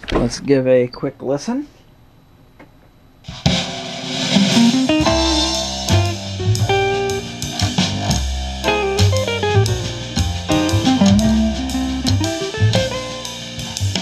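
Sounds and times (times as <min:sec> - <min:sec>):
guitar and drums music on speaker: 0:03.3 - 0:14.0.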